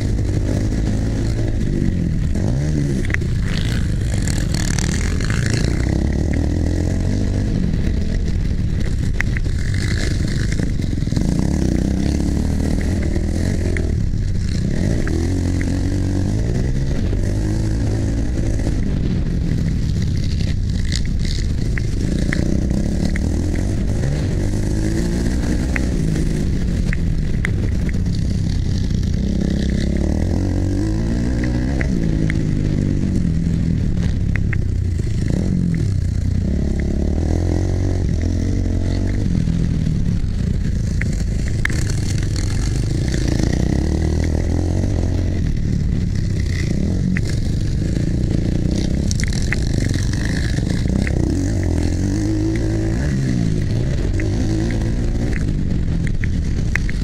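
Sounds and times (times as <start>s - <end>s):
sharp clicks: 0.0s - 17.3s, 18.0s - 57.0s
dirt bike engine revving: 0.0s - 57.0s.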